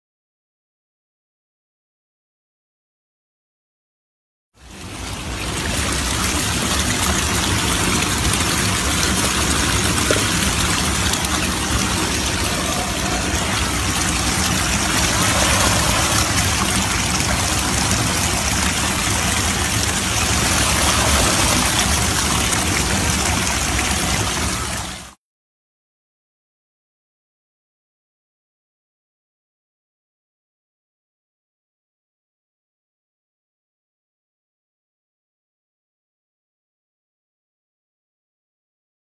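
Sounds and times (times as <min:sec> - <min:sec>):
water rushing over rocks: 0:04.7 - 0:25.2.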